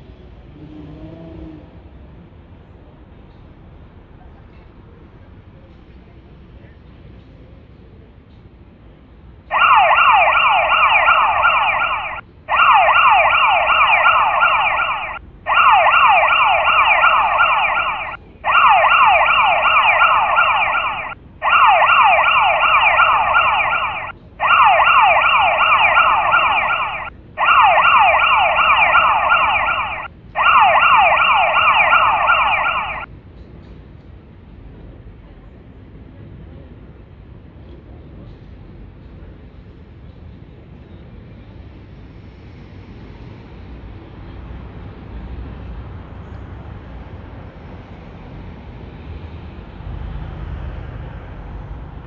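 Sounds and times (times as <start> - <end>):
faint road noise: 0.0 - 52.0
electronic siren warbling: 9.5 - 33.1.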